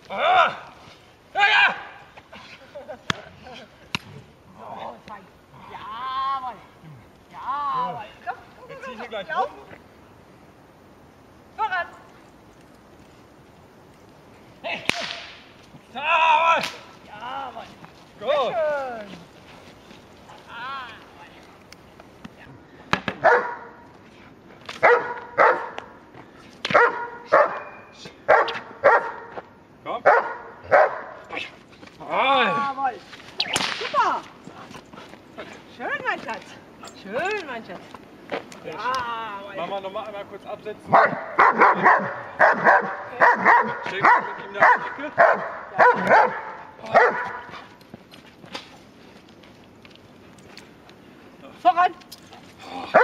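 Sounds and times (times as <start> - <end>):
dog barking loudly: 23.2 - 23.7, 24.8 - 25.8, 26.7 - 27.7, 28.3 - 29.3, 30.0 - 31.2, 40.9 - 47.6.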